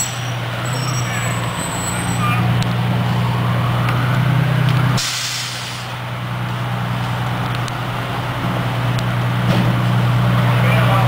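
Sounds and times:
diesel engine idling: 0.0s - 11.0s
air brakes hissing: 5.0s - 6.0s.

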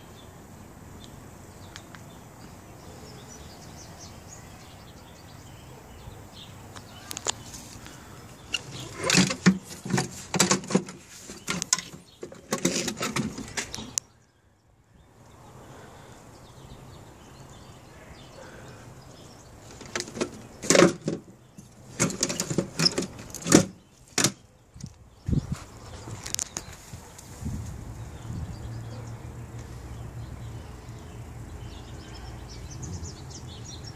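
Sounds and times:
saddlebag latch clicks and clunks: 19.7s - 21.3s, 22.0s - 24.4s.

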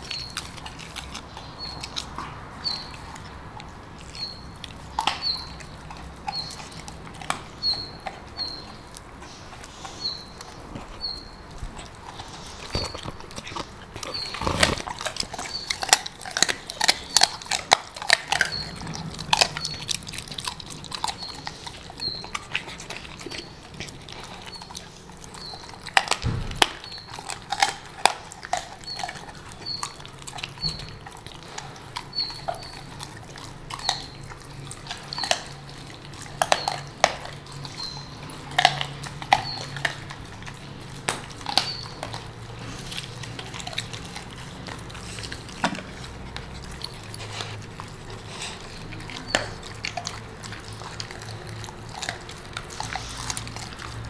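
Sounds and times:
dog crunching bones: 0.0s - 54.0s.

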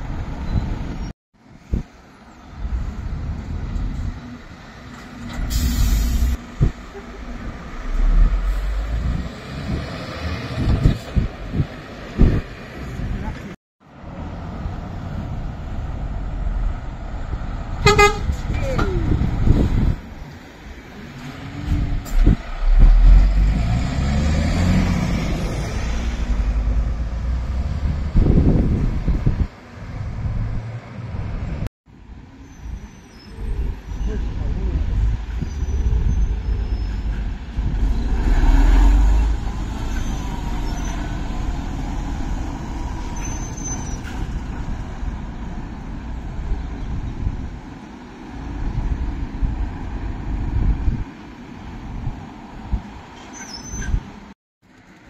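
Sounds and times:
diesel engine rumble: 0.0s - 55.0s
lorry driving past: 22.4s - 28.3s.

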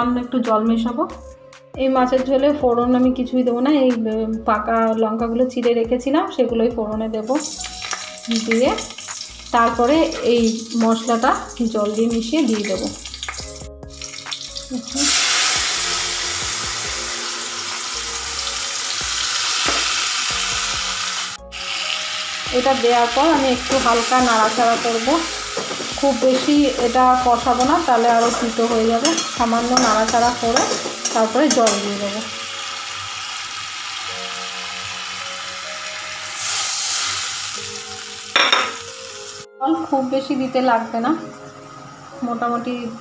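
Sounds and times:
background music with held notes: 0.0s - 43.0s
spice paste sizzling in oil: 7.3s - 40.1s.

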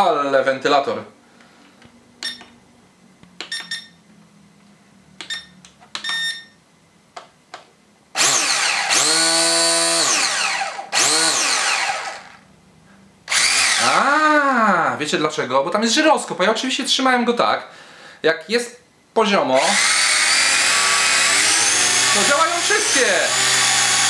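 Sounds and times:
drone motors whirring: 8.2s - 12.4s, 13.3s - 14.0s, 19.7s - 24.0s.

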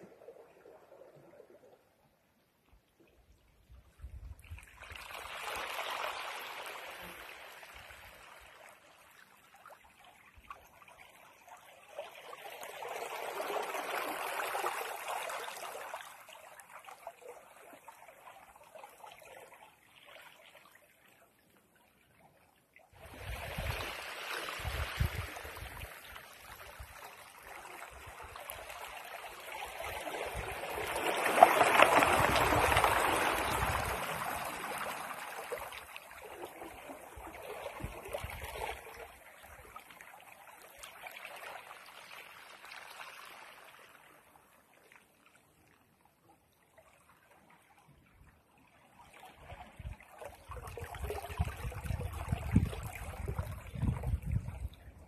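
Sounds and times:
waves washing over pebbles: 27.4s - 37.2s.

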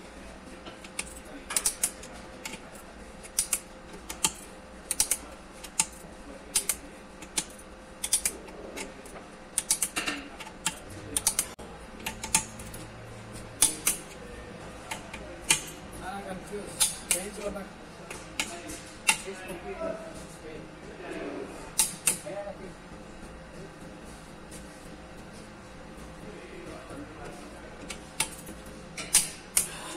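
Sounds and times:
hand ratchet clicking: 6.6s - 8.4s, 9.6s - 12.7s.

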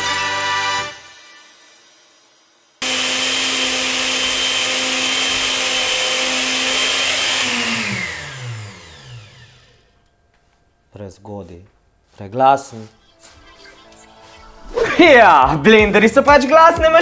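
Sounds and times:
blender running with high whine: 0.4s - 9.9s.

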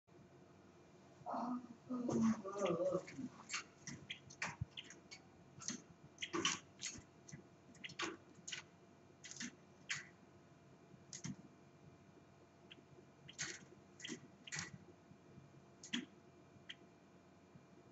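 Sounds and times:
bird clicking and tapping in cage: 3.4s - 10.1s, 11.1s - 11.4s, 13.3s - 14.8s.

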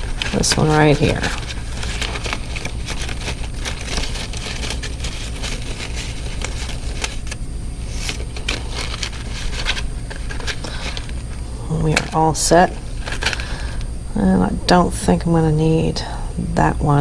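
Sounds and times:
plastic sheets rustling and clicking: 0.0s - 12.3s, 13.0s - 13.8s
steady low hum: 0.0s - 17.0s.

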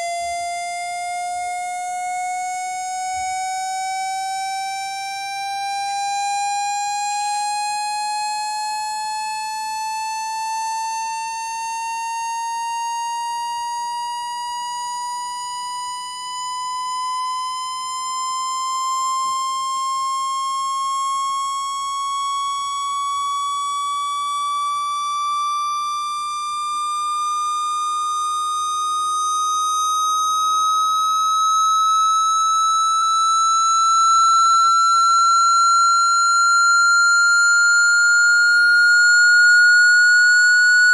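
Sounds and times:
rising buzzy electronic tone: 29.7s - 40.9s.

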